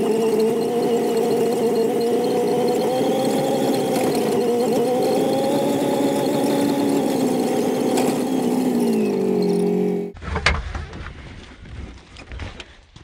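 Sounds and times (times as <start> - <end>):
engine running while driving: 0.0 - 10.2.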